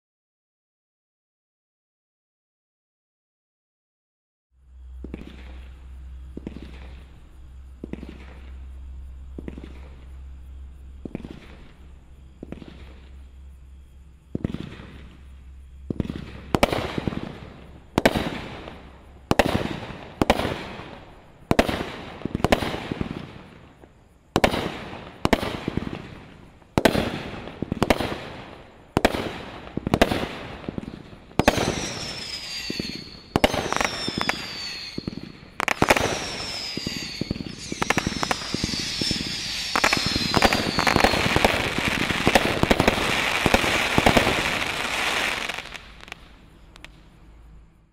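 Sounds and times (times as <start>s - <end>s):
firework crackle: 5.0s - 10.2s, 11.0s - 13.5s, 14.3s - 47.0s
falling whistling tones: 31.4s - 42.0s.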